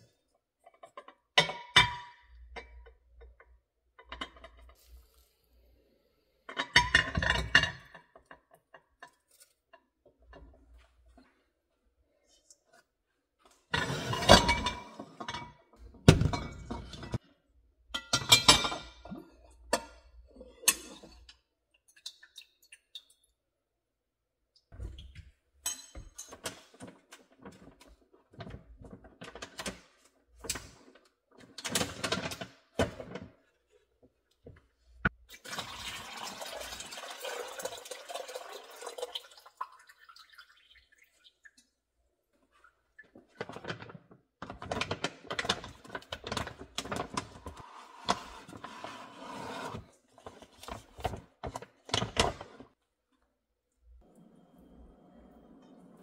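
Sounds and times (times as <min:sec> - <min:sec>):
liquid pouring: 0:35.2 - 0:41.7.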